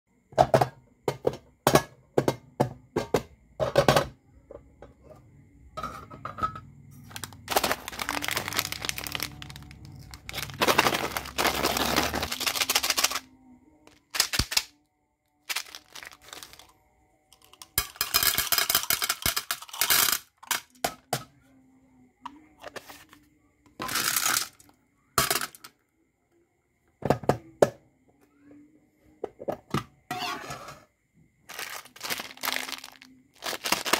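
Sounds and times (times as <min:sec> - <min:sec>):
hard candies rattling: 0:07.0 - 0:13.3, 0:13.9 - 0:14.7, 0:15.4 - 0:16.7, 0:17.4 - 0:20.6, 0:31.5 - 0:33.9
tin lids clicking and knocking: 0:17.4 - 0:21.2.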